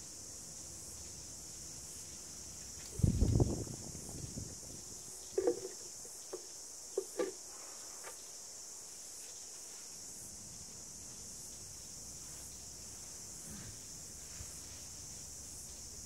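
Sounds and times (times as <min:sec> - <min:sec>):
steady high hiss: 0:00.0 - 0:16.0
paintbrush tapping paint pot rim: 0:05.4 - 0:06.4.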